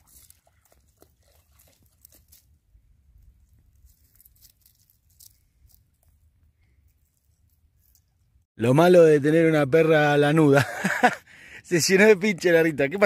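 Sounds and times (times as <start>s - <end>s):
faint crackles and rustles: 0.0s - 8.4s.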